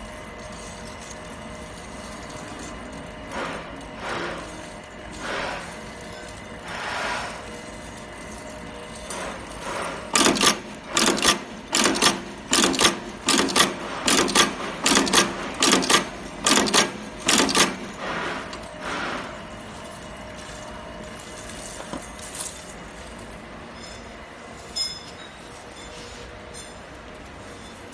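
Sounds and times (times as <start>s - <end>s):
press stamping loud clacks: 9.2s - 19.4s.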